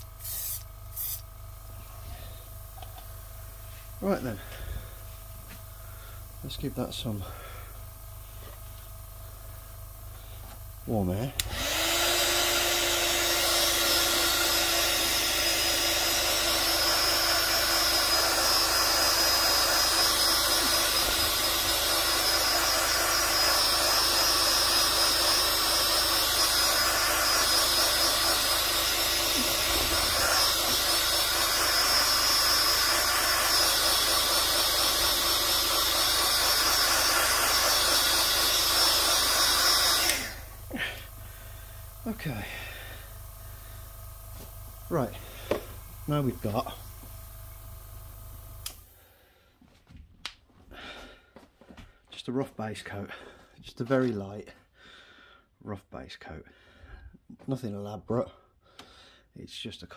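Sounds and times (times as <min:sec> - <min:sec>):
heat gun blowing air: 0:00.0 - 0:01.4, 0:09.6 - 0:47.3, 0:48.0 - 0:49.0
heat gun switch off: 0:00.0 - 0:01.4, 0:10.1 - 0:49.0.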